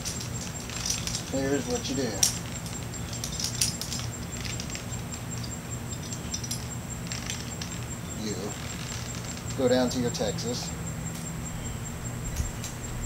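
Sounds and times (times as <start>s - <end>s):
metal climbing hardware clicking: 0.0s - 7.9s.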